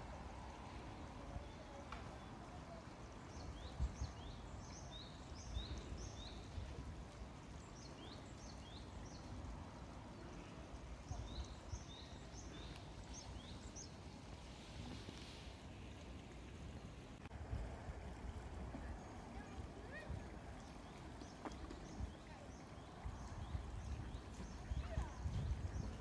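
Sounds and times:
songbird chirping: 0.4s - 15.4s, 18.8s - 26.0s
wind rumble on microphone: 3.4s - 9.6s, 17.2s - 26.0s.

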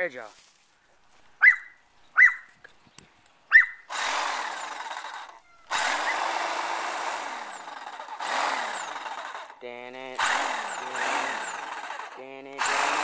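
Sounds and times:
dog barking: 1.4s - 2.5s, 3.5s - 3.8s
electric hedge trimmer running: 3.9s - 13.0s.

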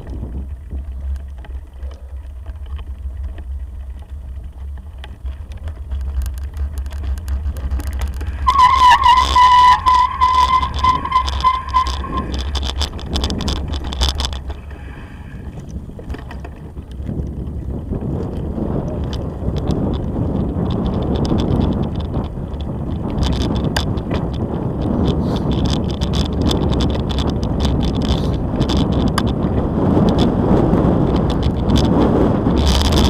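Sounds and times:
bicycle rattling on gravel: 0.0s - 33.0s
wind rumbling on microphone: 0.0s - 33.0s
bicycle brake squealing: 8.2s - 13.1s.

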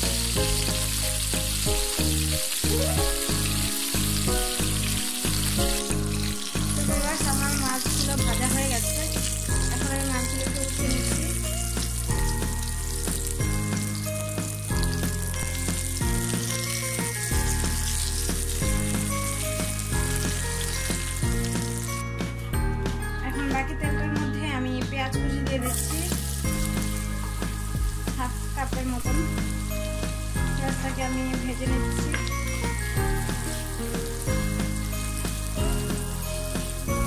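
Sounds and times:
fish frying in hot oil: 0.0s - 22.0s, 25.7s - 37.0s
spatula turning food in pan: 0.0s - 22.0s
background music: 0.0s - 37.0s.

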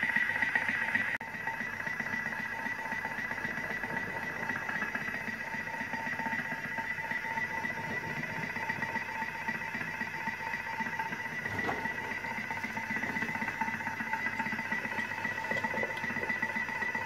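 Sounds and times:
food processor motor whining: 0.0s - 17.0s.

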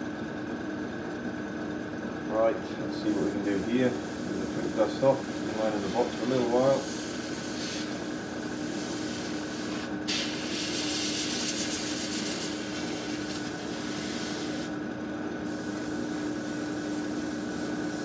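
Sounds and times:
extractor fan hum: 0.0s - 18.0s
airbrush spraying hiss: 3.1s - 14.7s, 15.4s - 18.0s.

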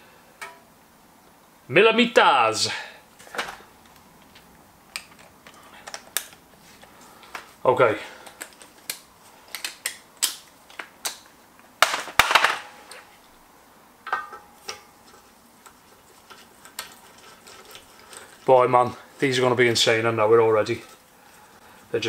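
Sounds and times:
metal bolts clinking: 14.1s - 14.9s.

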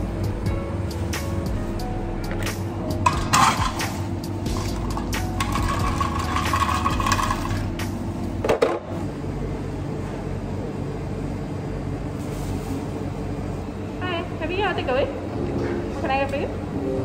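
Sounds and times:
hum of coffee machines: 0.0s - 17.0s
cups clinking and clattering: 3.0s - 3.9s, 4.5s - 7.7s.

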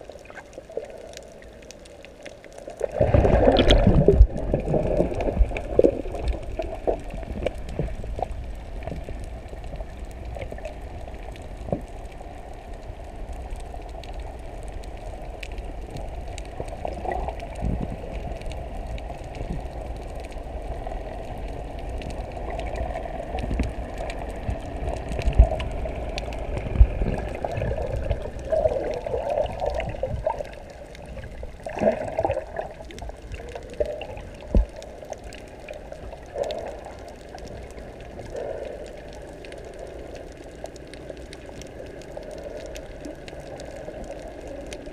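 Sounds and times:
muffled underwater rushing: 0.0s - 44.9s
water splashing: 2.6s - 9.3s, 22.4s - 44.9s.

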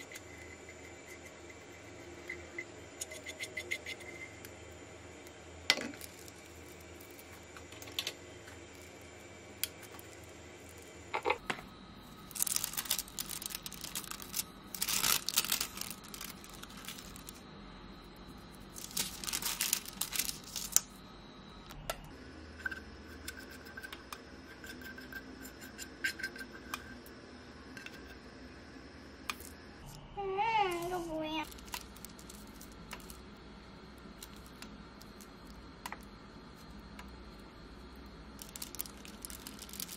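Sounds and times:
baking paper crinkling: 12.2s - 17.4s, 18.7s - 20.8s, 30.7s - 33.2s, 38.4s - 39.9s.

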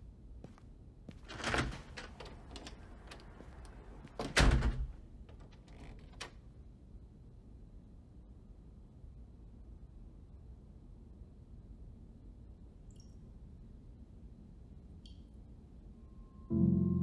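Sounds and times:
door shutting with heavy thud: 4.0s - 6.2s.

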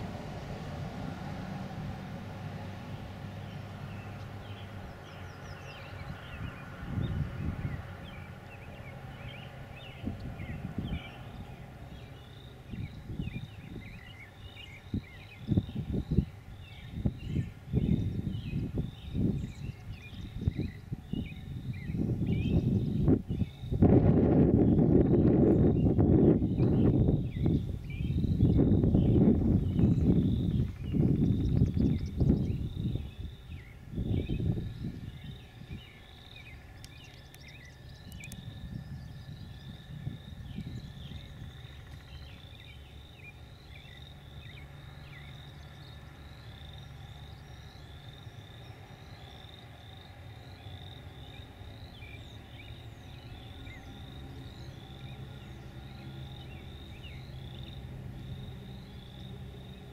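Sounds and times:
wind buffeting the microphone: 0.0s - 42.6s
birds singing: 2.6s - 59.9s
high-pitched chirping chorus: 3.5s - 23.9s, 24.6s - 59.9s.

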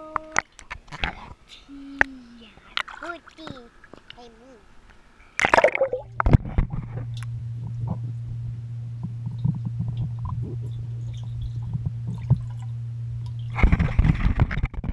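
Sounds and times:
low underwater hum: 0.0s - 14.9s
loud splashing: 2.8s - 3.9s, 5.4s - 6.1s.

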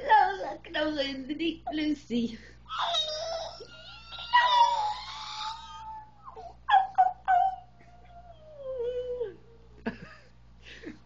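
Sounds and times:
baby squealing and crying: 2.7s - 7.5s.

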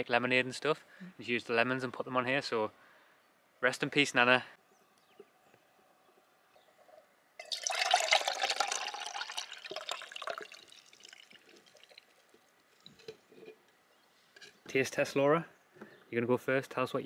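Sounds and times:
juice pouring into a steel mug: 7.4s - 13.1s.

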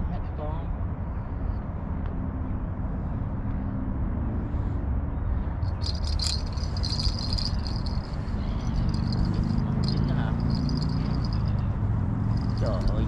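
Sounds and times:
fishing reel rattling: 5.6s - 11.6s, 12.3s - 13.0s.

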